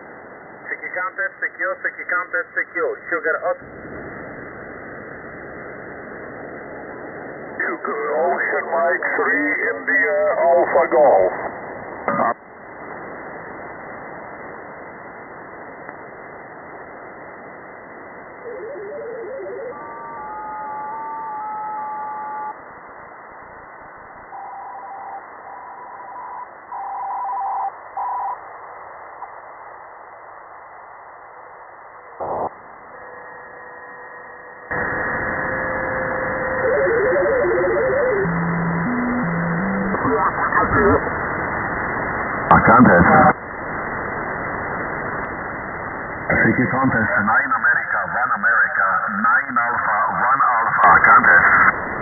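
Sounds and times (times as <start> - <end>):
radio band noise hiss: 0.0 - 52.0
radio crackle: 0.0 - 52.0
short whistling radio tones: 18.3 - 22.6, 32.2 - 40.8
warbling tone: 18.3 - 22.6, 34.7 - 41.0.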